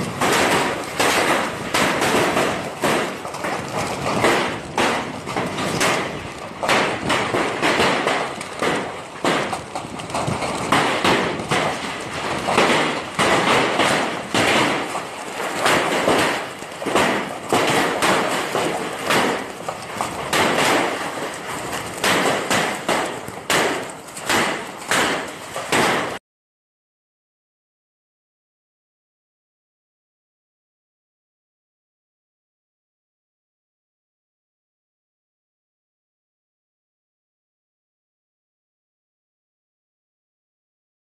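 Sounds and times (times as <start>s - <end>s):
hailstones pelting the ground: 0.0s - 26.2s.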